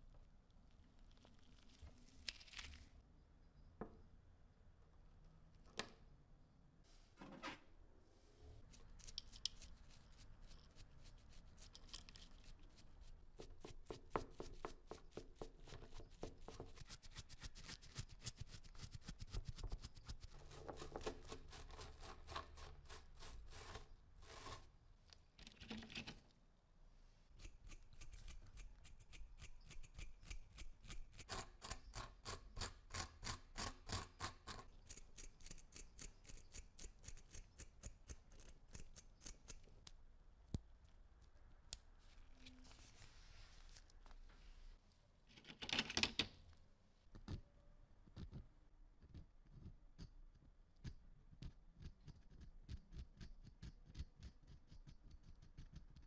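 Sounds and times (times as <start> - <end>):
stiff brush scrubbing porcelain: 8.8 - 24.7.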